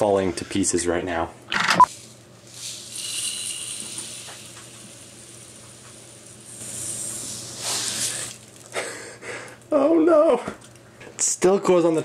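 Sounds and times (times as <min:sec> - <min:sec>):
granules pouring and rattling: 0:01.9 - 0:08.8.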